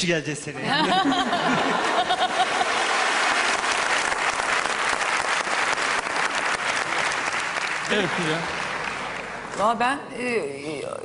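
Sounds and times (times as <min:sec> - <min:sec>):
audience applauding: 0:01.5 - 0:09.5.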